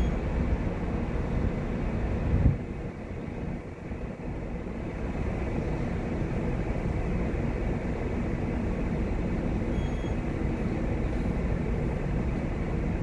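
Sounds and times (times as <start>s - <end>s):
faint high beep: 0.0s - 0.2s, 9.7s - 10.2s
ship machinery drone: 0.0s - 13.0s.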